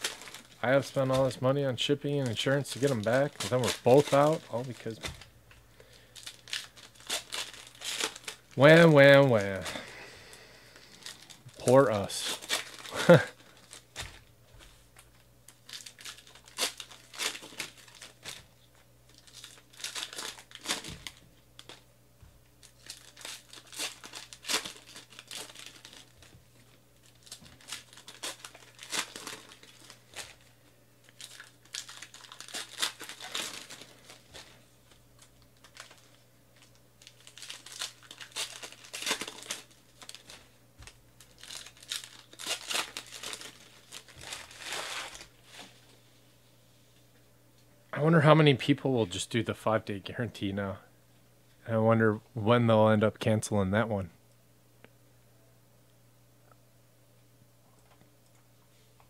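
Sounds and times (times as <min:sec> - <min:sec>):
wrappers crinkling and tearing: 0:00.0 - 0:10.0, 0:10.6 - 0:21.8, 0:22.6 - 0:45.8
cards being handled: 0:02.2 - 0:05.2.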